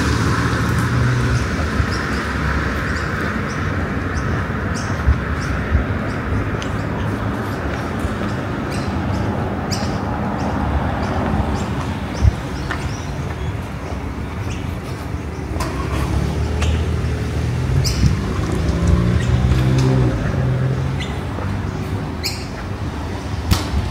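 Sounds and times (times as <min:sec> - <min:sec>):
passing vehicle engine: 0:00.0 - 0:04.7, 0:15.5 - 0:23.4
road traffic: 0:00.0 - 0:23.9
bird chirps: 0:01.9 - 0:13.6, 0:20.9 - 0:22.6.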